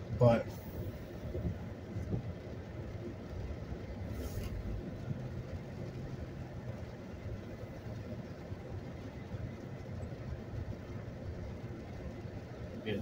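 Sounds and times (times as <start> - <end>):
brief hiss: 4.1 - 4.6.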